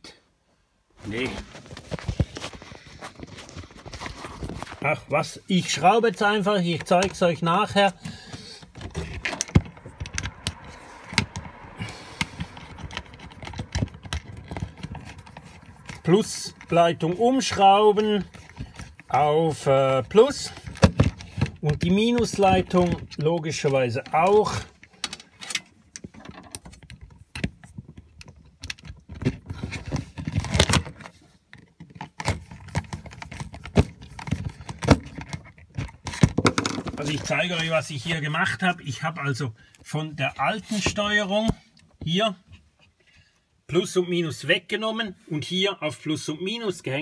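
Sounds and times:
wires being handled: 0:01.0 - 0:38.3
screwdriver clicking and scraping: 0:07.9 - 0:17.1.

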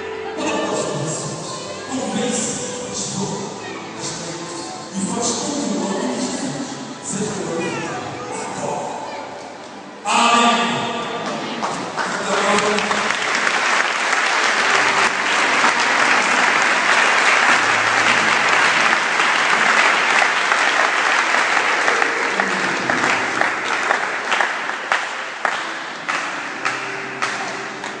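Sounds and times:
crowd applauding: 0:11.2 - 0:28.0.

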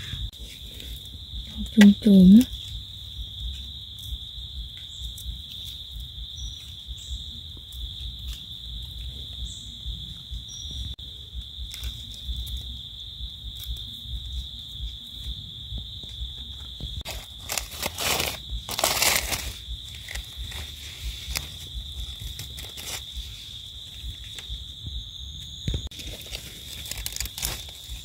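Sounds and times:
high-pitched insect drone: 0:00.0 - 0:28.0
dry leaves crackling: 0:17.0 - 0:24.6, 0:25.9 - 0:28.0.

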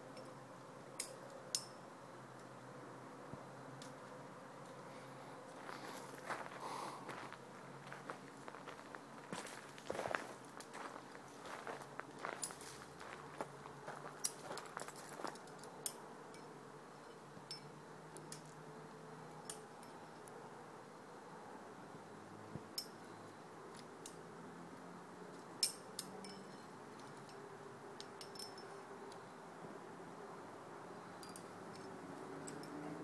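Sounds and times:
metal climbing gear clinking: 0:01.0 - 0:01.8, 0:12.2 - 0:12.8, 0:14.2 - 0:18.6, 0:19.4 - 0:20.3, 0:22.8 - 0:23.0, 0:25.3 - 0:27.4, 0:28.0 - 0:28.8, 0:31.0 - 0:33.0.

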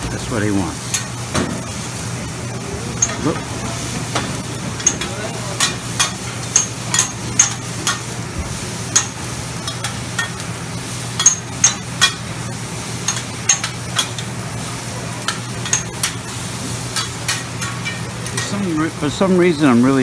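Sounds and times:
food sizzling: 0:00.0 - 0:20.0
metal spatulas clacking on griddle: 0:04.8 - 0:08.1, 0:08.9 - 0:10.4, 0:11.2 - 0:12.2, 0:13.1 - 0:14.3, 0:15.2 - 0:16.2, 0:16.9 - 0:18.6.

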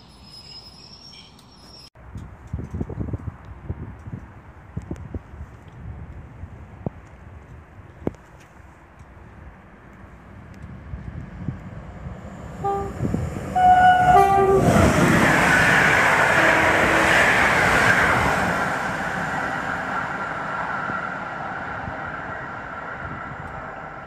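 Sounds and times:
train coaches rushing and rattling: 0:10.9 - 0:21.9
two-tone train horn: 0:12.6 - 0:15.2, 0:16.3 - 0:17.2.

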